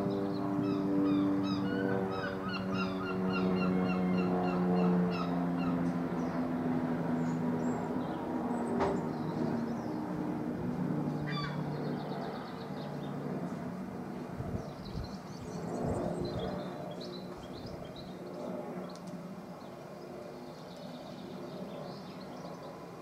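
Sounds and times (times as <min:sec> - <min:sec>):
small birds chirping: 0:00.0 - 0:10.2, 0:11.0 - 0:13.4.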